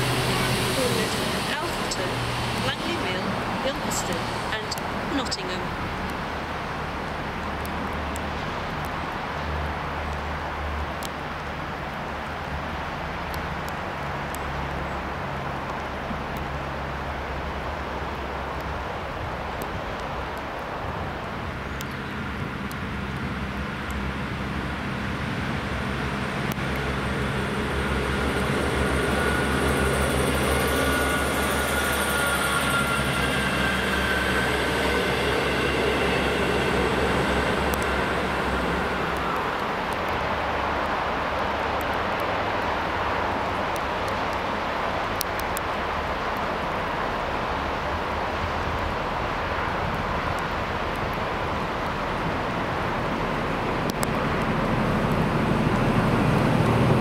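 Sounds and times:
diesel engine drone: 0:00.0 - 0:57.0
train passing: 0:00.0 - 0:57.0
high whining tones: 0:26.8 - 0:40.3.

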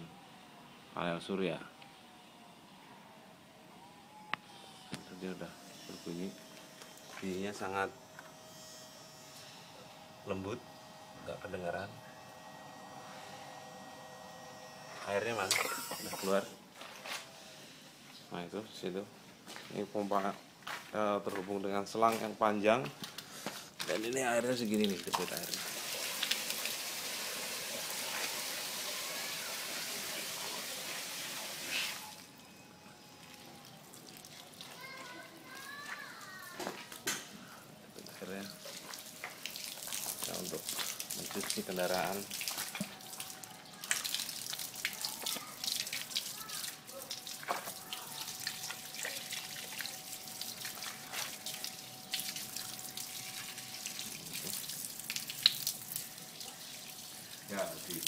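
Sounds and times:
faint steady tone: 0:00.0 - 0:16.7, 0:32.0 - 0:34.1
water pouring onto wet leaves: 0:23.8 - 0:32.2, 0:33.2 - 0:36.1, 0:38.0 - 0:58.0.

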